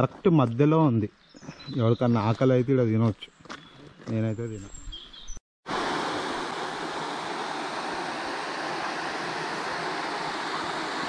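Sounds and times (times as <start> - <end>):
stream water rushing: 5.7 - 11.0.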